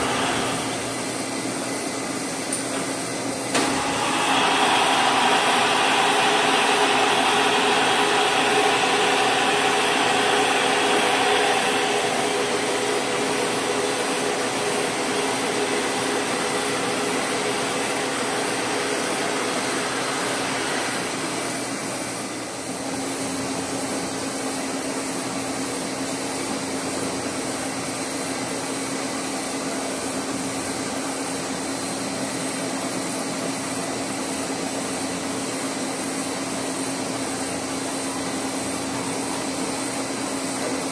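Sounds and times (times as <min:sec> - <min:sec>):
boring mill whirring: 0:00.0 - 0:24.0.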